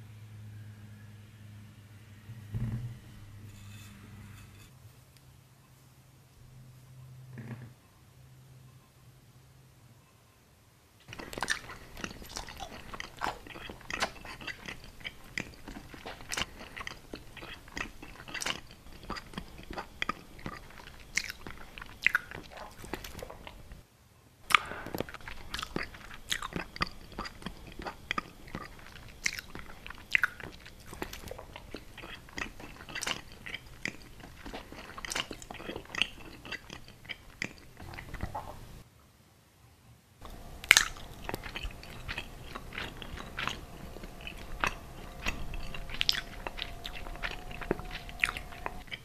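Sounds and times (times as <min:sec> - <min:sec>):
biting and chewing: 0:11.0 - 0:23.8, 0:24.5 - 0:38.8, 0:40.2 - 0:49.0
wet mouth noises: 0:11.1 - 0:23.8, 0:24.5 - 0:38.8, 0:40.2 - 0:49.0.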